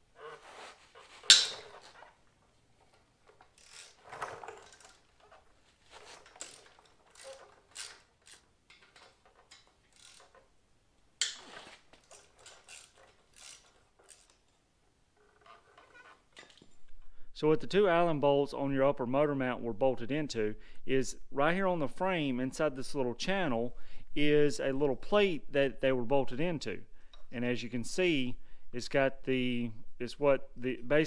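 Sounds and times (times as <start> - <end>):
metallic clinks and scrapes: 0.3 - 2.2, 2.8 - 10.5, 11.2 - 14.6
sharp metal clack: 1.2 - 1.8
hand ratchet clicking: 3.3 - 5.0, 6.0 - 10.5, 11.2 - 14.5.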